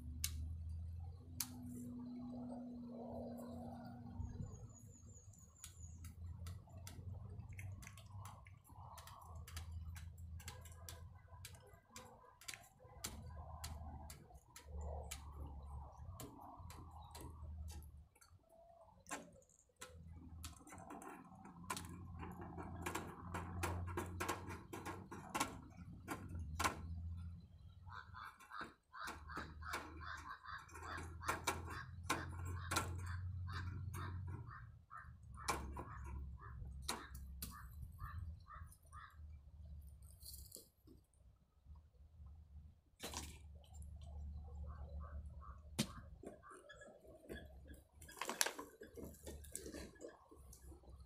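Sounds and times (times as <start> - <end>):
wire mesh clicking and rattling: 5.3 - 39.1.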